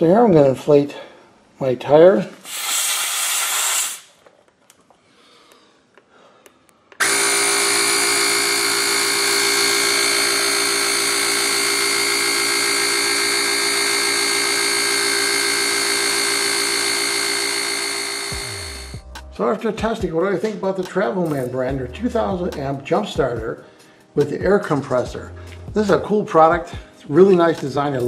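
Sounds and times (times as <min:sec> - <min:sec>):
air compressor running: 0:07.0 - 0:19.0.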